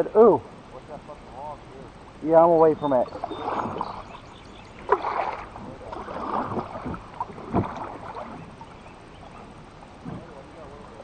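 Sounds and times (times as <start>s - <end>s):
paddle strokes swishing through water: 2.9s - 11.0s.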